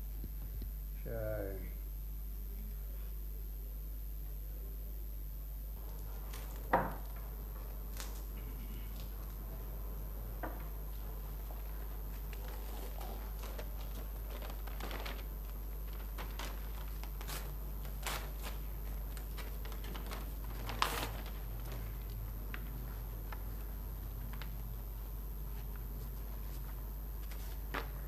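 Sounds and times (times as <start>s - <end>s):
steady low hum: 0.0s - 28.0s.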